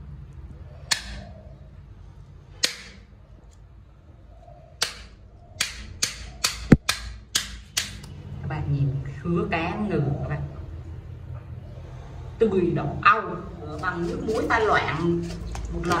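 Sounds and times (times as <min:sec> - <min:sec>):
stone pounding knife blade: 0:04.8 - 0:08.0.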